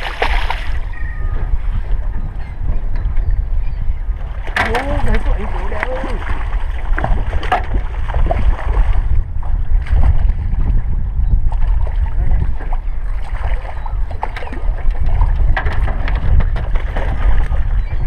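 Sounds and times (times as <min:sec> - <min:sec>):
fish splashing at surface: 0:00.0 - 0:00.8
water slapping boat hull: 0:00.0 - 0:18.0
wind rumbling on microphone: 0:00.0 - 0:18.0.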